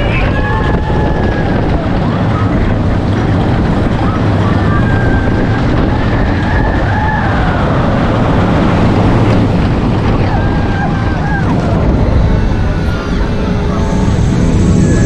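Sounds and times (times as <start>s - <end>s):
roller coaster wheels rumbling: 0.0s - 15.0s
wind buffeting microphone: 0.0s - 15.0s.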